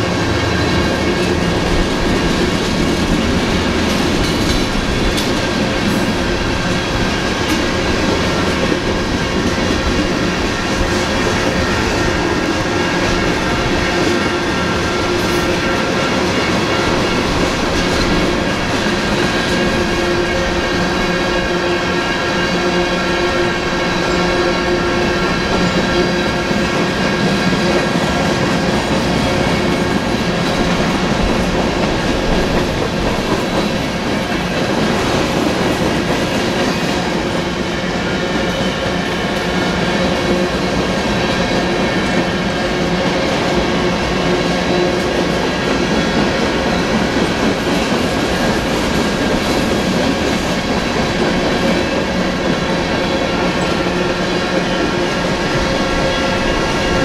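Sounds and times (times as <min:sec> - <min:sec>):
train wheels clacking over rail joints: 0:00.0 - 0:57.0
crossing bells ringing: 0:51.9 - 0:57.0.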